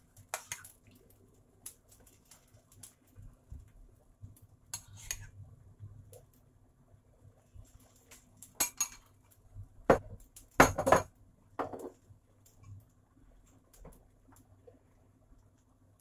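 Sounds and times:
metal spoon clinking on bowl and pan: 8.6s - 9.1s.

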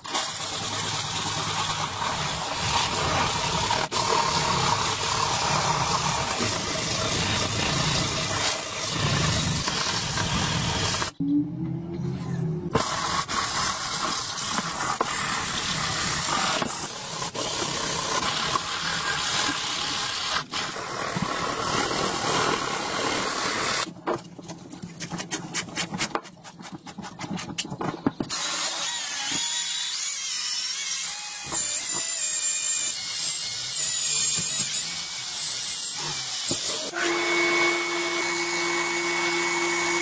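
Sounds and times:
small power tool whining: 28.2s - 40.0s.

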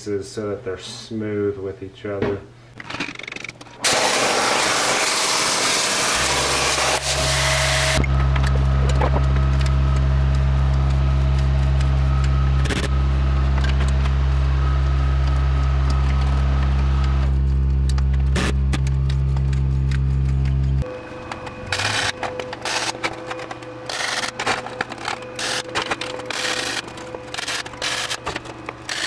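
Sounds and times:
plasma torch cutting steel: 3.8s - 8.0s
electric motor humming: 3.8s - 29.0s.

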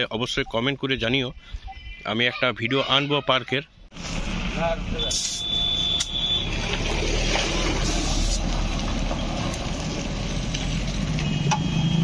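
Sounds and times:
air hissing into tyre: 5.1s - 5.5s, 7.7s - 8.5s.

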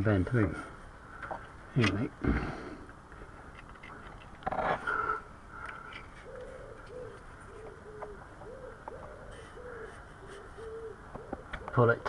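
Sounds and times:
pigeon cooing: 4.8s - 12.0s.

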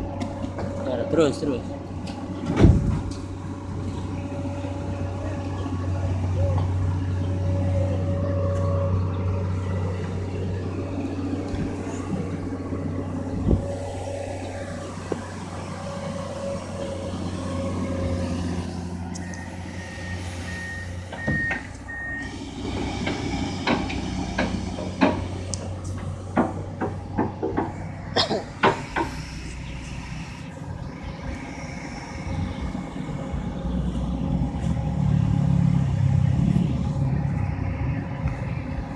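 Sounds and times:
excavator diesel engine running: 0.0s - 38.9s
warning alarm beeping: 19.2s - 22.4s.

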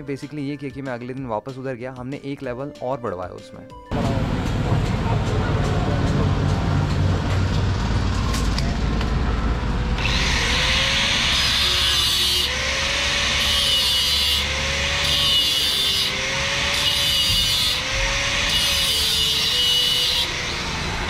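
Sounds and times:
hand saw rasping on metal tubing: 10.2s - 20.7s.

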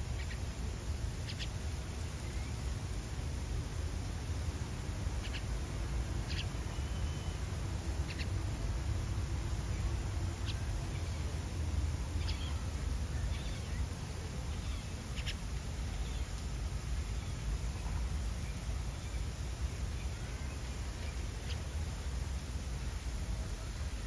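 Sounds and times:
nestlings squeaky calls: 1.3s - 1.5s, 5.2s - 5.4s, 6.3s - 7.2s, 8.1s - 8.3s, 12.2s - 12.6s, 14.6s - 15.4s.

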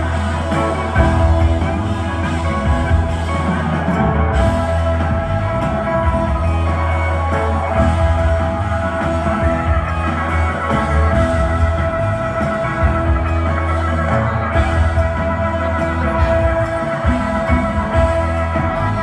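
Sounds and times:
electric guitar: 0.0s - 19.0s
heavy sustained bass: 0.0s - 19.0s.

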